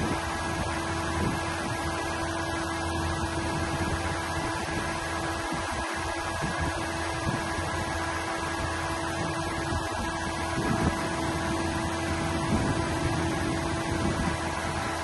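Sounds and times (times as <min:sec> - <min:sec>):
mechanical hum with whine: 0:00.0 - 0:15.0
wind rumble on microphone: 0:00.0 - 0:15.0.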